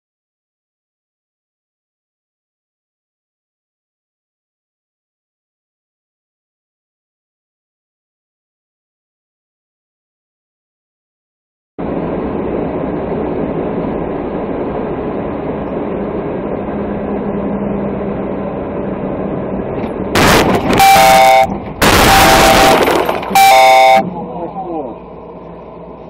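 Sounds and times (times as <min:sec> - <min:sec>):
vehicle engine and road noise: 0:11.8 - 0:26.0
harsh loud noise: 0:20.1 - 0:24.2
vehicle horn blasts: 0:20.2 - 0:24.2.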